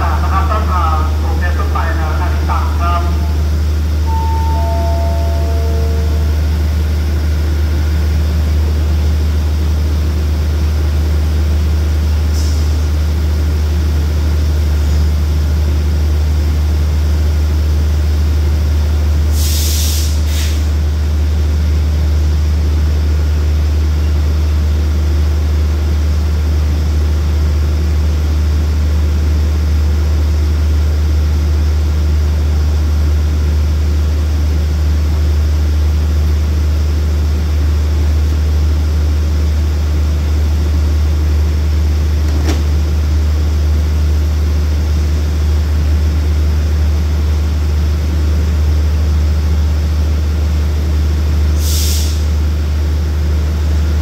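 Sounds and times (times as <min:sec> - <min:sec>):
diesel engine idling drone: 0:00.0 - 0:54.0
air hiss: 0:51.6 - 0:52.3.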